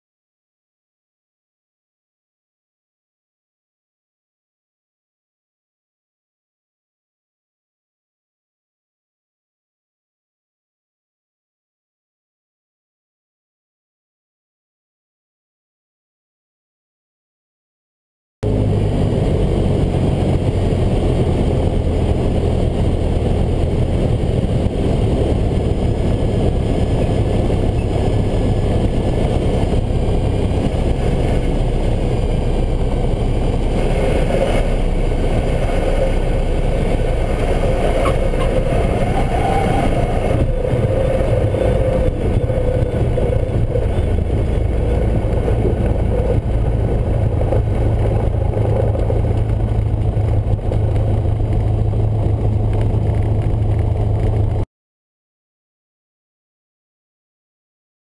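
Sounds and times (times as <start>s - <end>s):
airplane engine and propeller: 18.4s - 54.6s
heavy wind rush: 18.4s - 54.6s.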